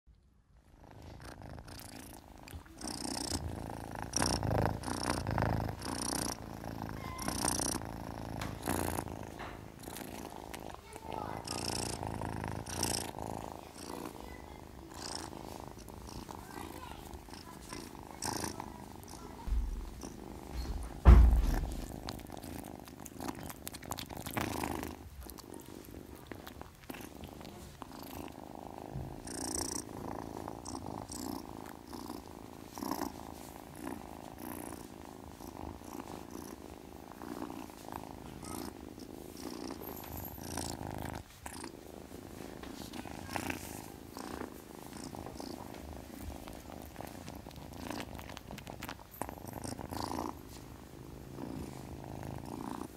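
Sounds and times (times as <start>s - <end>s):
kitten purring: 0.1s - 52.9s
loud low thump: 19.4s - 22.0s.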